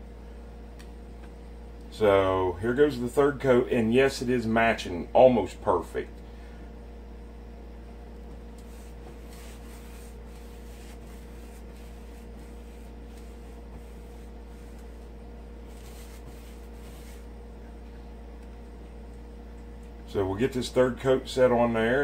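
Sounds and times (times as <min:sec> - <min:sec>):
low hum: 0:00.0 - 0:22.0
paintbrush rubbing textured wall: 0:08.6 - 0:17.4.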